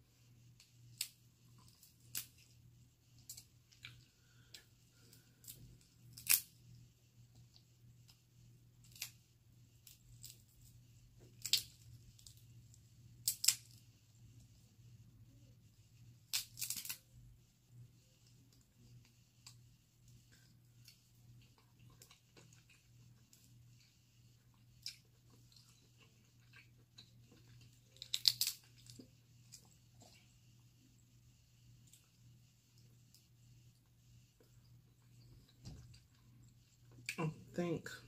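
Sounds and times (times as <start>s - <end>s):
crab shell cracking: 5.4s - 6.5s, 13.2s - 13.8s, 16.3s - 17.0s, 28.0s - 29.0s.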